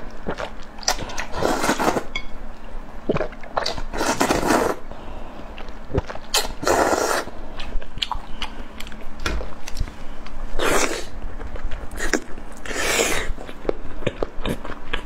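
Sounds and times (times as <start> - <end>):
wet chewing and lip smacks: 7.6 - 9.9.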